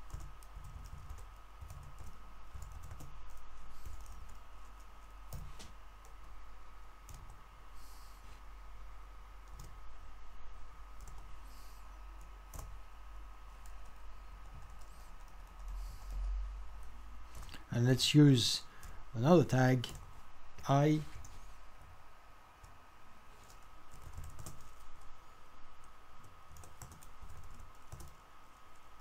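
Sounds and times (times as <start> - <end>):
typing on keyboard: 0.0 - 6.3, 7.0 - 7.4, 9.4 - 9.8, 11.0 - 11.3, 13.6 - 15.8, 23.4 - 25.1, 26.5 - 28.2
faint steady hum: 0.0 - 29.0.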